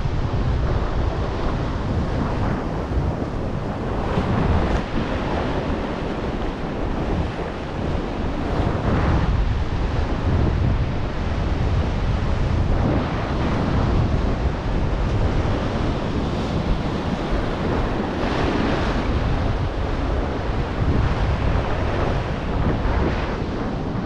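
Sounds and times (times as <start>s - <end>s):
wind buffeting microphone: 0.0s - 24.0s
surf breaking on rocky shore: 0.1s - 24.0s.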